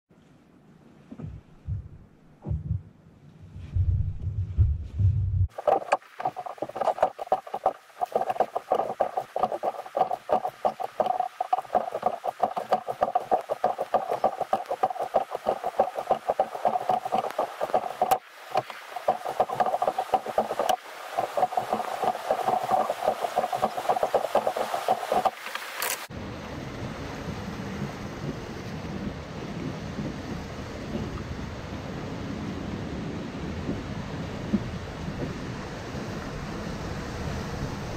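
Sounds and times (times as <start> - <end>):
water lapping and dripping: 5.5 - 26.1
roar of whitewater: 5.6 - 26.7.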